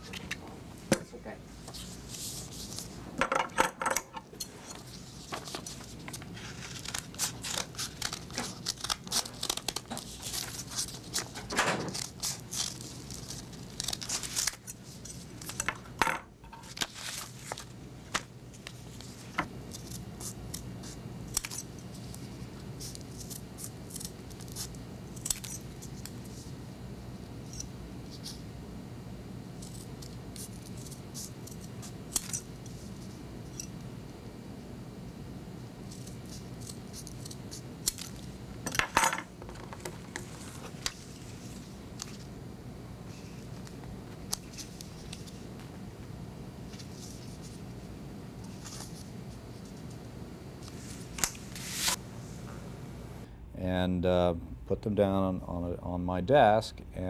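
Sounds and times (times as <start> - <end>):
paper rustling: 4.7 - 15.6, 16.6 - 21.0, 50.6 - 52.0
scissors snipping paper: 5.4 - 15.7, 19.7 - 22.2, 22.8 - 26.2, 35.9 - 38.3.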